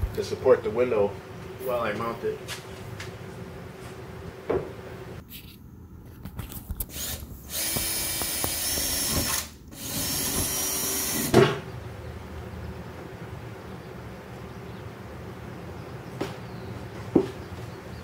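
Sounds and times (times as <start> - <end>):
drill boring through aluminum: 6.9 - 11.4.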